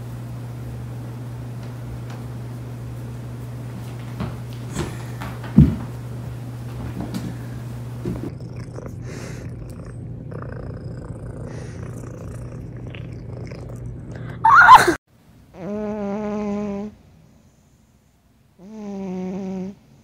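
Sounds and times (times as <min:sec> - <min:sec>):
cat purring: 0:08.1 - 0:14.2
cat crying: 0:14.4 - 0:15.0.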